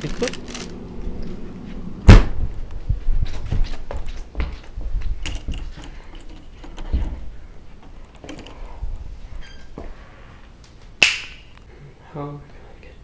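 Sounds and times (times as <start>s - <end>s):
low thumps: 0.8s - 5.8s.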